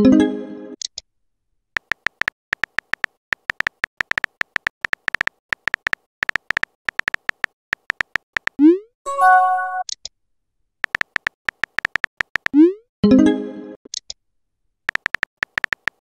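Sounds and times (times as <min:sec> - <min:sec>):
phone keyboard tap clicks: 0:01.8 - 0:08.6, 0:10.8 - 0:12.6, 0:14.9 - 0:16.0.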